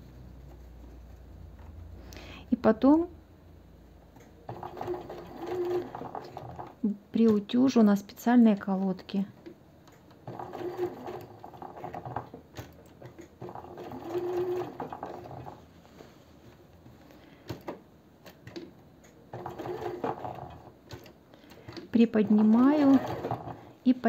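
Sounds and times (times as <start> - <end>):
sewing machine stitching: 4.5 - 7.4, 10.1 - 15.7, 19.3 - 23.8.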